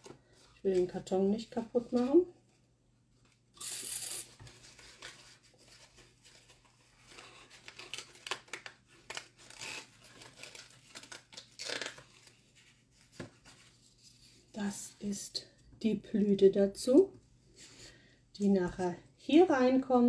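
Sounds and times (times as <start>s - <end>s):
packaging rustling: 4.3s - 14.2s.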